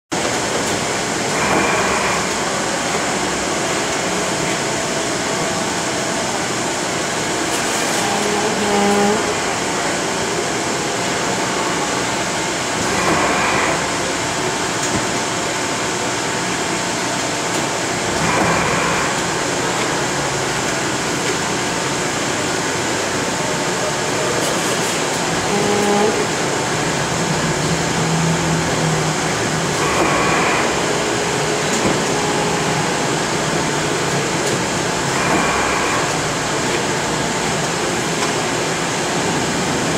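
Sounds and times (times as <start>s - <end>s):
steady machine din: 24.9s - 38.2s.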